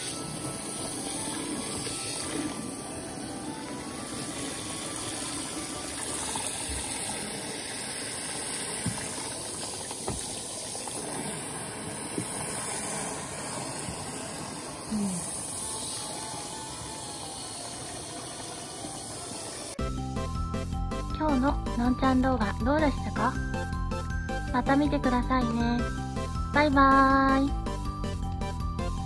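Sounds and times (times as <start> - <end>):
shower water running into bathwater: 0.0 - 19.8.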